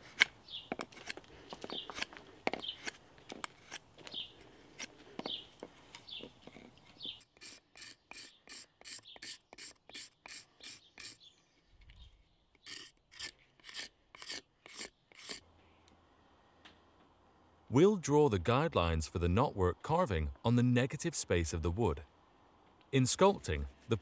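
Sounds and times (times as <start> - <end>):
axe blade scraping wood: 0.0 - 5.4, 6.2 - 11.3, 12.6 - 15.4.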